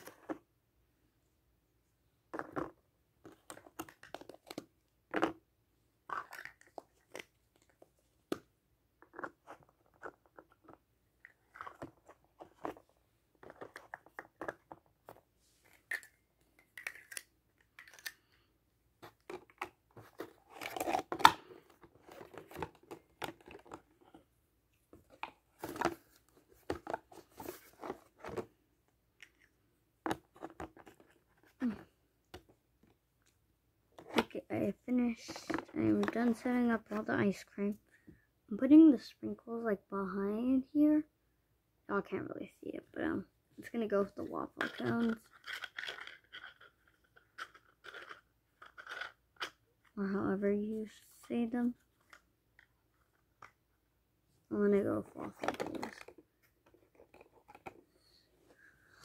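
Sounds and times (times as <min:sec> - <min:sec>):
plastic toys tapping and knocking: 0:02.3 - 0:05.4, 0:44.6 - 0:49.6, 0:55.2 - 0:57.8.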